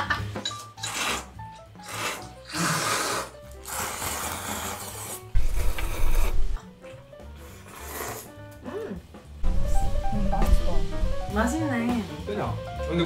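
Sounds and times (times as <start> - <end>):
background music: 0.0 - 13.0
people slurping noodles: 0.8 - 9.0.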